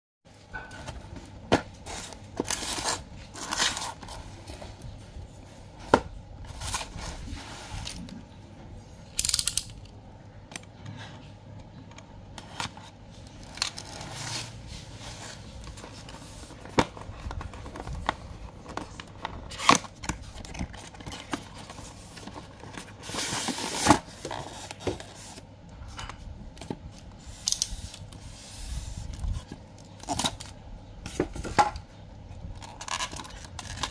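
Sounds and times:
cardboard and foam scraping and rustling: 0.8s - 8.2s, 12.4s - 26.1s.

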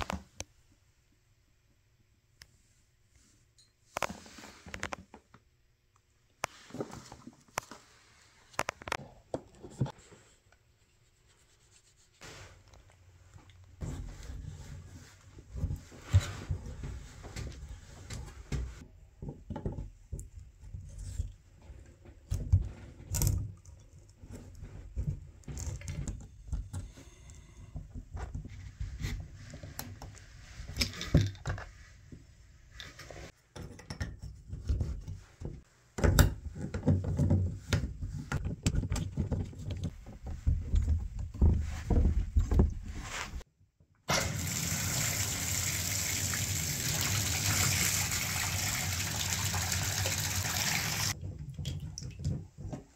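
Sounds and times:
water gushing from tub spout: 44.1s - 51.2s.

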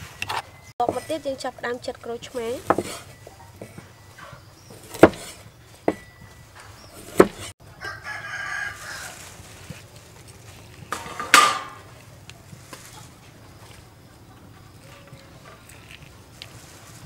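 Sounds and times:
cleaver chopping on wooden board: 2.6s - 3.8s, 4.7s - 6.1s, 7.0s - 7.5s
rooster crowing: 7.6s - 9.5s
chickens clucking: 10.7s - 15.8s.

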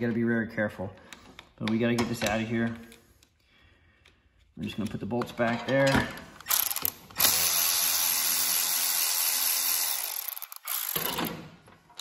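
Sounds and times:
cordless ratchet spinning: 6.4s - 11.2s.

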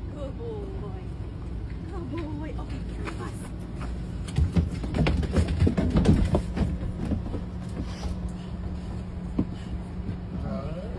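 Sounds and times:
bus engine idling: 0.0s - 4.9s, 6.2s - 10.9s.

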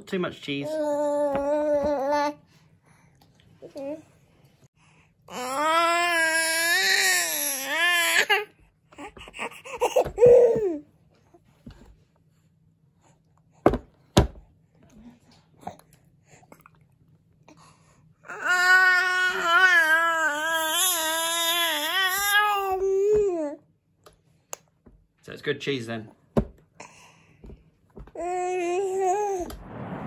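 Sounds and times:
baby crying: 5.3s - 10.8s, 18.3s - 23.2s.

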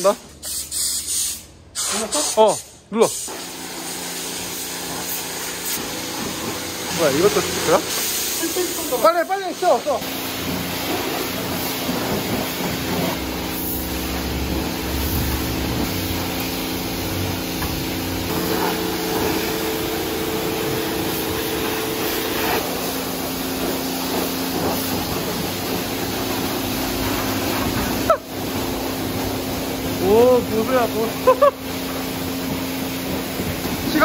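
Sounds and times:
pressure washer jet hissing: 0.0s - 34.0s
steady hum: 10.0s - 34.0s.

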